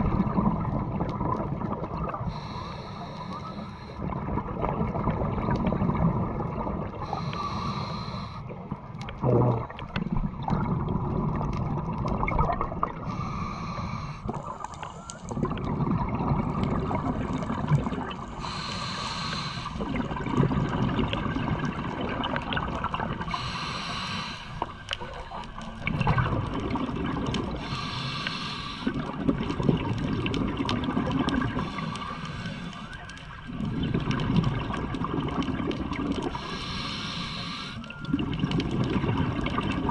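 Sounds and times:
exhaled bubbles gurgling: 0.0s - 39.9s
regulator hissing inhale: 2.3s - 4.1s, 7.0s - 8.6s, 13.0s - 15.0s, 18.3s - 20.0s, 23.2s - 24.9s, 27.6s - 29.1s, 31.4s - 33.1s, 36.2s - 38.0s.

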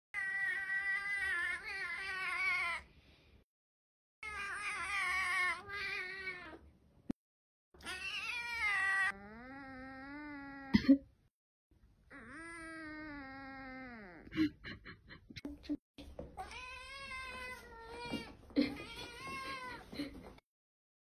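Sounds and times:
cat yowling: 0.2s - 2.8s, 4.2s - 6.6s, 7.8s - 10.7s, 12.1s - 14.2s.

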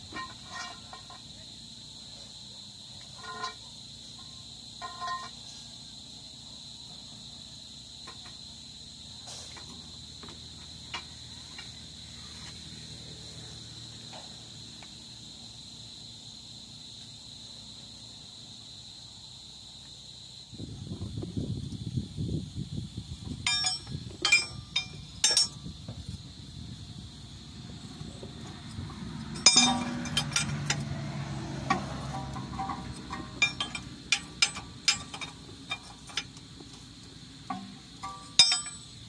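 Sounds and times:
crickets trilling: 0.0s - 39.0s
ringing metallic clinks: 3.2s - 5.4s, 23.4s - 25.7s, 29.1s - 36.5s, 37.5s - 39.0s.

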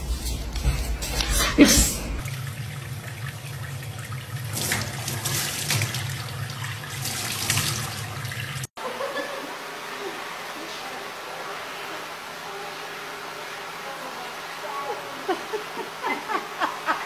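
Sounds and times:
tap water running into sink: 2.2s - 8.7s.

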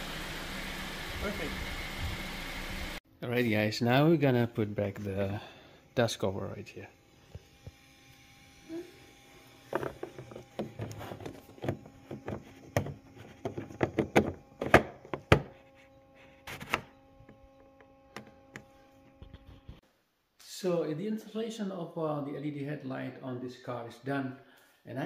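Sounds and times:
dust cover knocks rubs and clicks: 9.7s - 19.8s.

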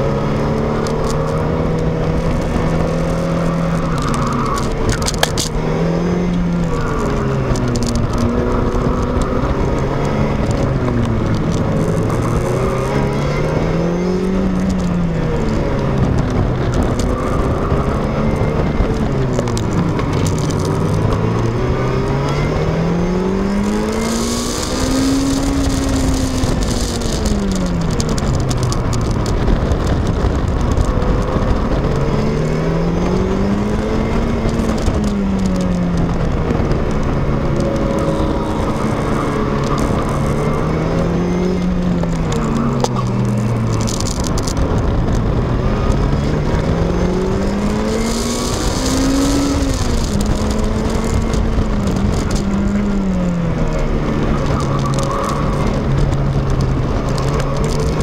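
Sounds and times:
car engine accelerating and slowing: 0.0s - 58.0s.

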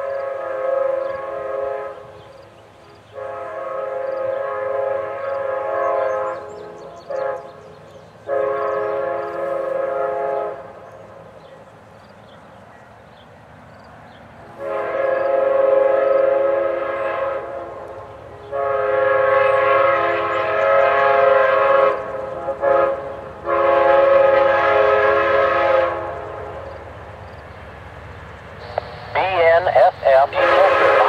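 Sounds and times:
locomotive air horn blasts: 0.0s - 2.2s, 3.1s - 7.6s, 8.3s - 10.8s, 14.6s - 26.5s, 28.6s - 31.0s
low train rumble: 0.0s - 31.0s.

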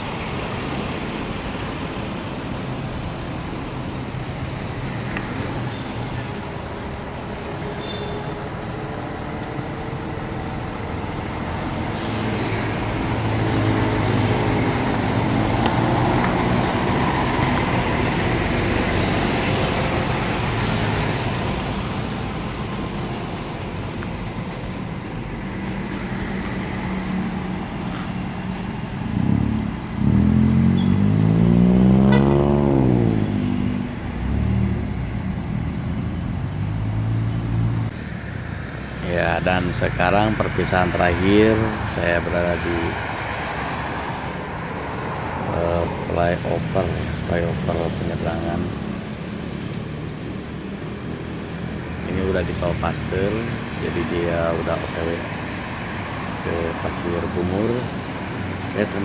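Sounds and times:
diesel trucks passing: 0.0s - 59.0s
engine revving hard: 29.1s - 33.6s.

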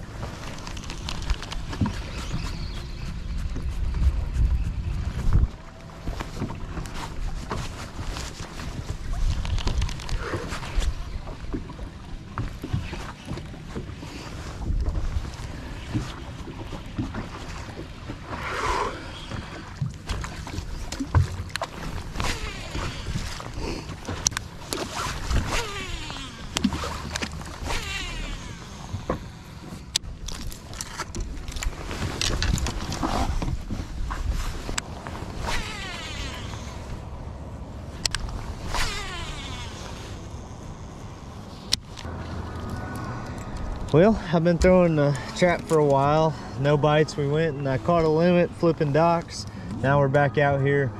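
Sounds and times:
steady low rumble: 0.0s - 12.4s, 28.3s - 50.9s
wind buffeting microphone: 0.0s - 29.4s
water lapping at boat hull: 0.0s - 49.8s.

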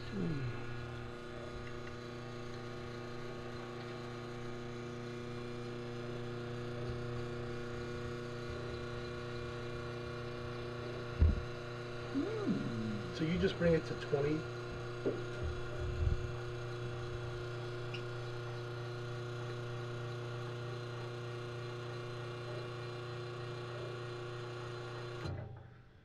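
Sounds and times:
steady electrical hum: 0.0s - 19.9s.

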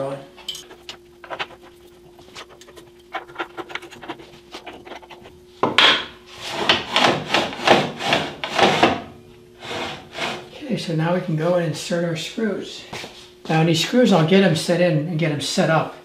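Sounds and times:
table rubbing strokes: 0.6s - 5.4s, 9.6s - 10.5s.

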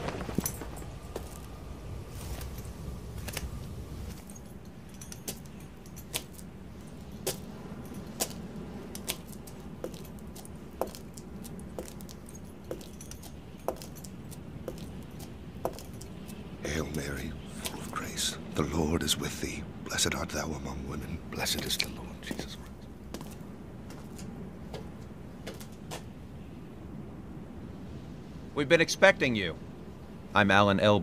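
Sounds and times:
light metallic jingle: 0.1s - 17.5s.

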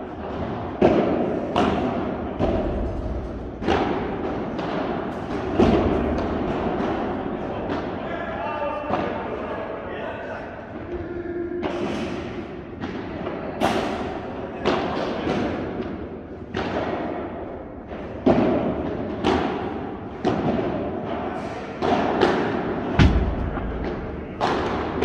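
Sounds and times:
padel rackets striking ball: 21.8s - 25.0s
deep thud: 22.9s - 25.0s
ball bouncing: 23.0s - 25.0s.

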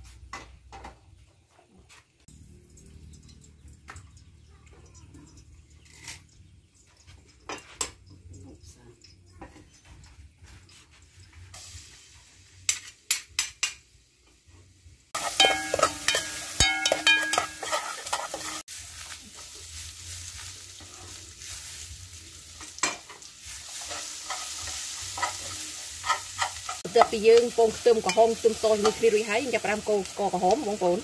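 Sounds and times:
garlic sizzling in oil: 10.4s - 31.0s
metal ladle scraping pot: 15.2s - 18.6s, 22.8s - 27.1s.

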